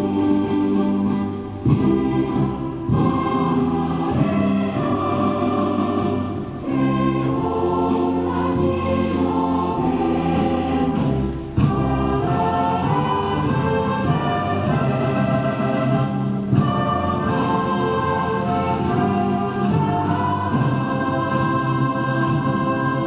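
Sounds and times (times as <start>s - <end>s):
large choir singing: 0.0s - 23.0s.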